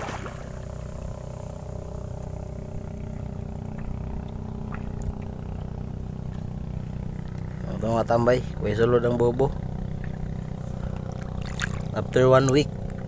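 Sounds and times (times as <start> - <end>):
boat engine humming: 0.0 - 13.0
faint water ticks: 3.1 - 7.6, 9.4 - 13.0.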